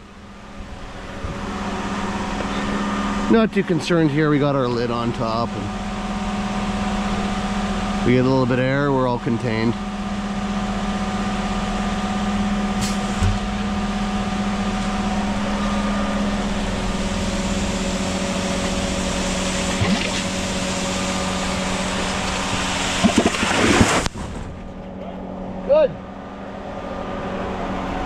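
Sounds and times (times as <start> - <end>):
diesel engine running fast: 0.0 - 28.0
concrete rushing from drum: 22.0 - 24.6.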